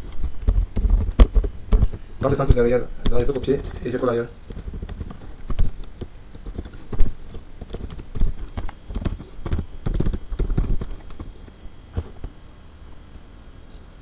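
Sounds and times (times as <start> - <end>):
typing on computer keyboard: 4.5 - 11.3.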